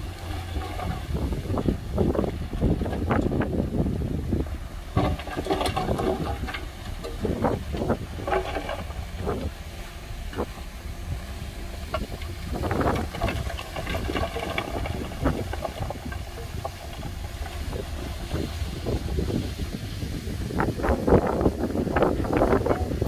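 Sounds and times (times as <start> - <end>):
diesel engine rumble: 0.0 - 23.0
wind on microphone: 0.0 - 23.0
knocks and clanks: 4.9 - 9.5, 11.8 - 18.6.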